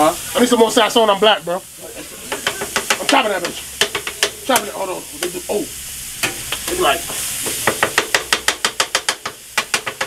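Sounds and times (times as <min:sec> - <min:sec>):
meat sizzling: 0:00.0 - 0:10.0
spatula clacking on griddle: 0:02.0 - 0:05.4, 0:06.2 - 0:10.0.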